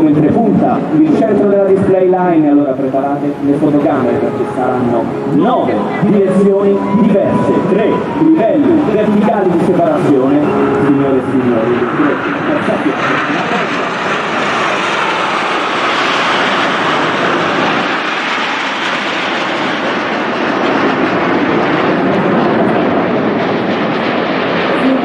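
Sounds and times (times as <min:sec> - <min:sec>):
jet engines flying past: 0:00.0 - 0:25.0.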